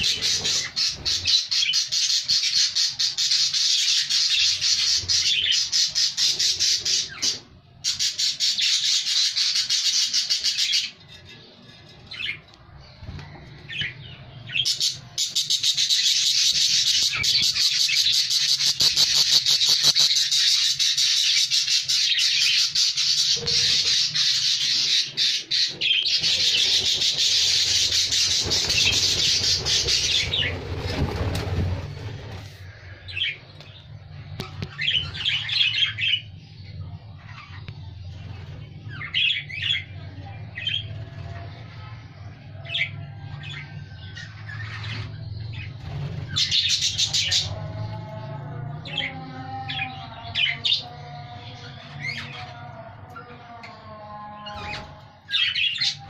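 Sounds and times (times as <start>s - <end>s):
budgerigars chattering: 14.6s - 21.1s.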